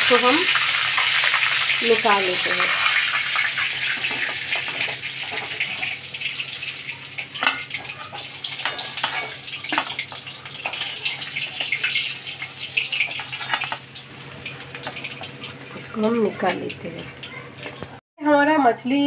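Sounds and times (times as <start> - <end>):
hot oil sizzling: 0.0 - 18.0
metal spoon clinking on pan: 7.2 - 13.8.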